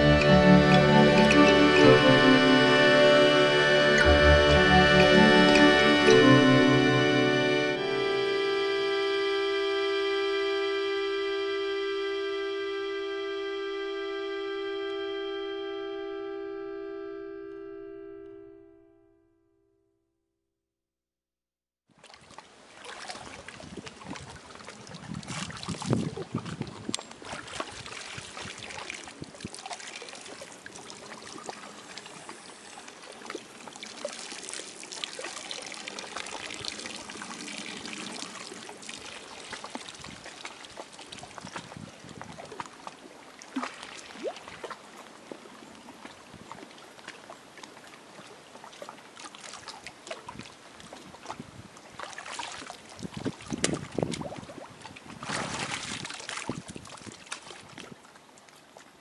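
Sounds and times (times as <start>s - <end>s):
water trickling and lapping: 21.9s - 59.0s
small splashy clicks: 52.0s - 58.9s.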